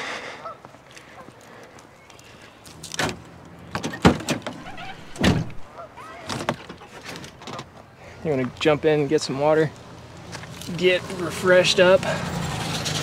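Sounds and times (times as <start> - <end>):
tailgate clicks and clunks: 2.8 - 7.7.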